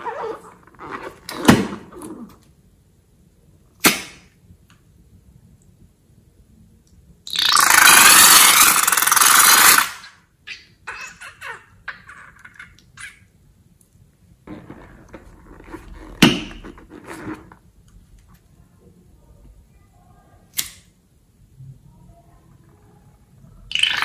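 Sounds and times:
rubbery squeezing and handling: 0:00.0 - 0:02.4, 0:14.5 - 0:17.7
sharp snap: 0:03.8 - 0:04.3, 0:20.5 - 0:20.9
balloon spluttering liquid: 0:07.3 - 0:10.0, 0:23.7 - 0:24.0.

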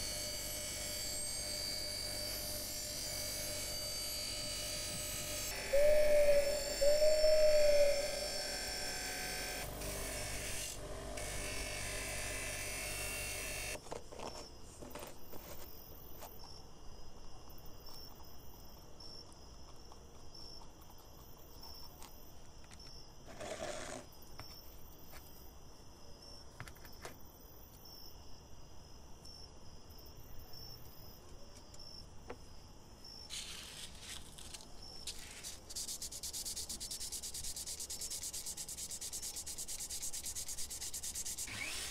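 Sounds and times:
bench grinder grinding metal: 0:00.0 - 0:13.8, 0:41.4 - 0:41.9
faint hiss: 0:33.1 - 0:41.9
brief rustle: 0:33.3 - 0:35.8
hand rubbing metal part: 0:35.1 - 0:41.9.

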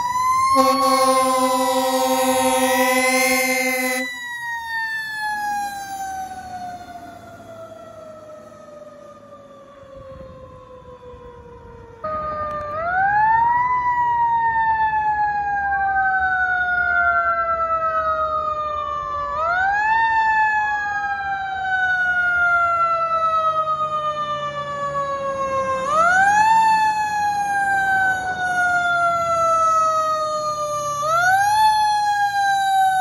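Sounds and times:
fire engine air horn blasting: 0:00.0 - 0:07.6
overlapping siren tones: 0:00.0 - 0:13.7, 0:25.8 - 0:33.0
mechanical siren wailing: 0:00.0 - 0:33.0.

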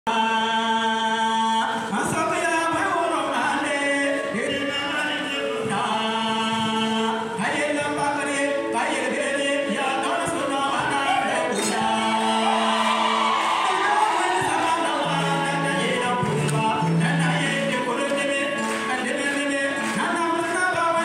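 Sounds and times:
choir singing a hymn: 0:11.1 - 0:16.5.

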